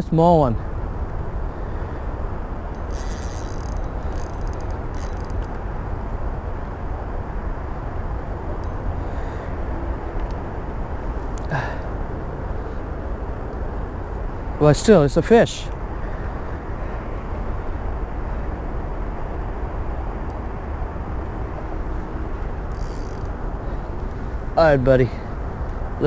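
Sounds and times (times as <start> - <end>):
faint clicks and rattles: 2.7 - 5.6.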